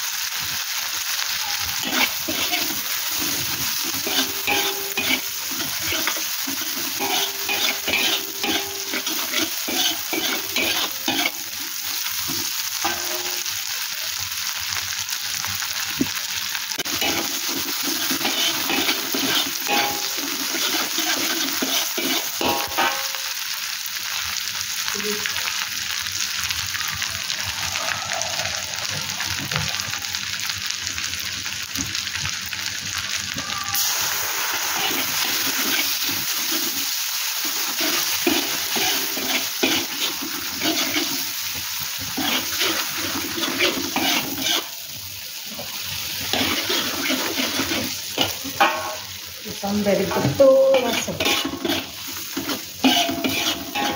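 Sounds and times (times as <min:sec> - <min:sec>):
paste sizzling in hot oil: 0:00.0 - 0:53.9
metal spatula scraping a wok: 0:01.7 - 0:13.6, 0:16.8 - 0:23.3, 0:34.6 - 0:44.8, 0:45.6 - 0:49.1, 0:49.9 - 0:53.9.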